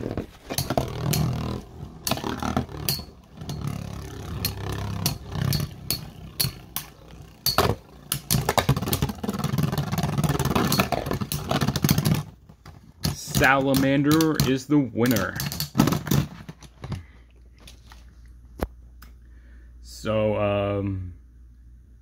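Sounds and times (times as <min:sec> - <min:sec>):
spinning tops whirring: 0:00.0 - 0:12.4
spinning tops clacking: 0:00.6 - 0:12.1.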